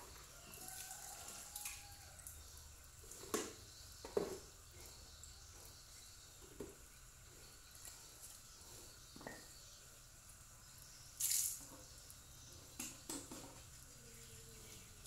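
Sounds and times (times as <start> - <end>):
faint outdoor hiss: 0.0 - 15.0
plastic bucket clunking on concrete: 3.2 - 4.5.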